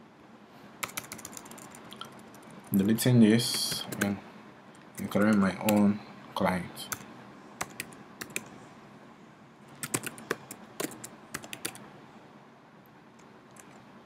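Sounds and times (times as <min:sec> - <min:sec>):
computer keyboard keystrokes: 0:00.8 - 0:02.8, 0:05.0 - 0:05.9, 0:07.6 - 0:08.5, 0:09.8 - 0:11.8.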